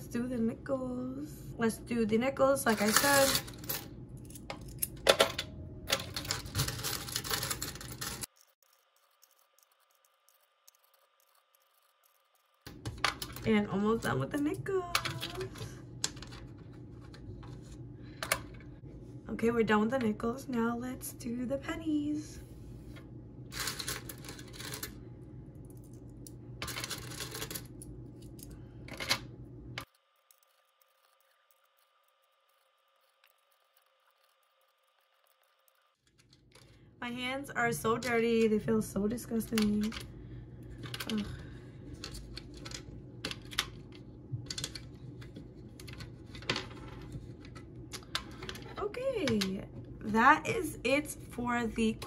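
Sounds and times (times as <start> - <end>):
coins clinking and clicking: 2.7 - 8.5, 23.5 - 25.0, 26.6 - 29.2.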